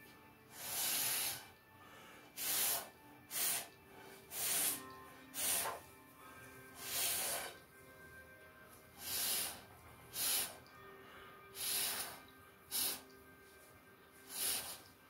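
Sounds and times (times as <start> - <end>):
air puffs through a straw: 0.5 - 1.6, 2.3 - 5.9, 6.8 - 7.6, 9.0 - 10.7, 11.5 - 13.2, 14.3 - 15.0.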